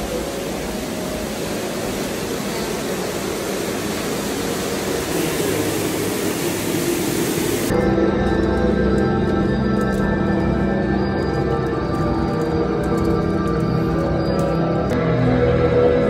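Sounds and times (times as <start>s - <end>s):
shallow water flowing: 0.0s - 7.7s.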